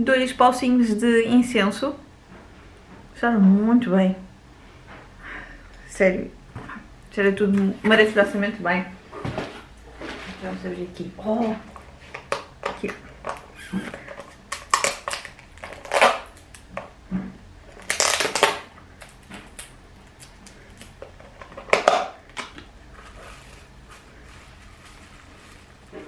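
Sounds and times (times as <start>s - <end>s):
gift wrapping tearing and crinkling: 13.3s - 16.8s, 17.7s - 26.0s.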